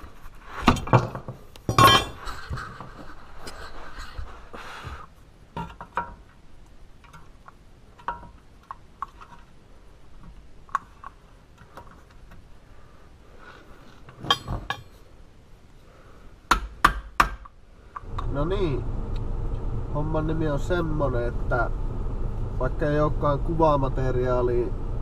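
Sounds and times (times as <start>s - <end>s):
metal tools clinking: 1.7s - 2.4s, 14.1s - 15.0s.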